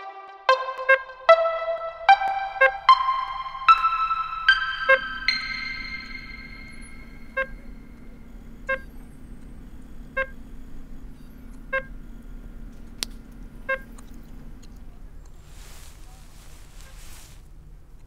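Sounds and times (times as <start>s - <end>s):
barcode scanner beeping: 0.8s - 12.7s, 13.4s - 14.1s.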